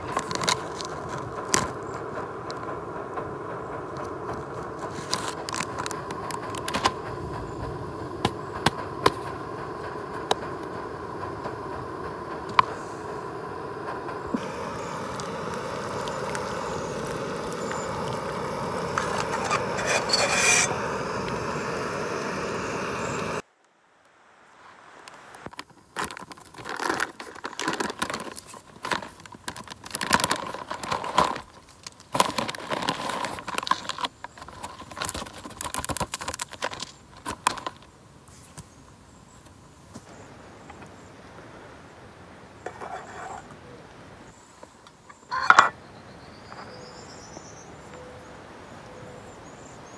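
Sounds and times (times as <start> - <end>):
gas stove hissing: 0.0 - 23.4
foil pouch crinkling: 25.6 - 37.9.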